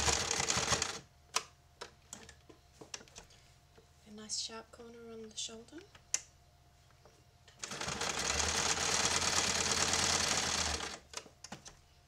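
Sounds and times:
sewing machine stitching: 0.0 - 1.0, 7.6 - 11.1.

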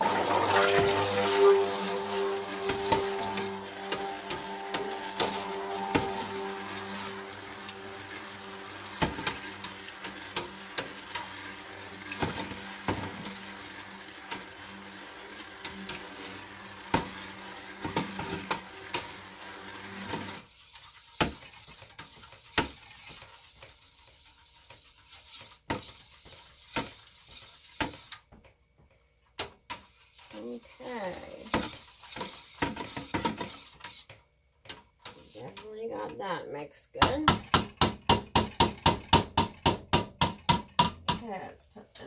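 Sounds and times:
blender head knocking pot: 0.0 - 14.6, 37.0 - 41.3
stick blender motor humming: 0.0 - 23.3
utensils tapping and scraping pot: 0.0 - 28.2, 29.4 - 42.0.

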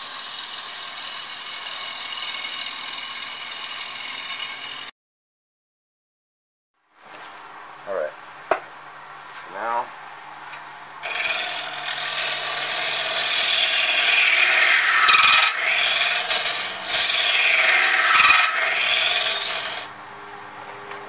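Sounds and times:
lathe tool scraping wood: 11.0 - 19.9.

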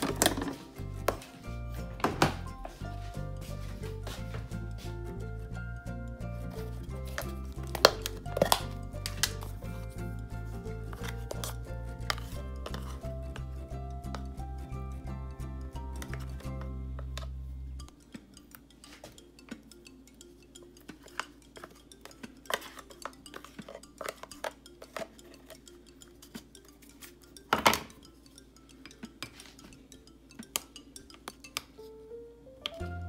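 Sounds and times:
plastic spoon scraping tub: 6.5 - 13.4
spoon clinking ceramic bowl: 6.6 - 9.7, 10.9 - 14.3, 16.0 - 31.8.

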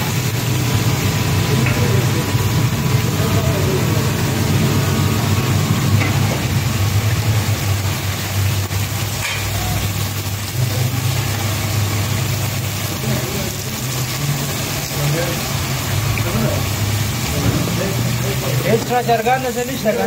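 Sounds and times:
fish sizzling in hot oil: 0.0 - 20.0.

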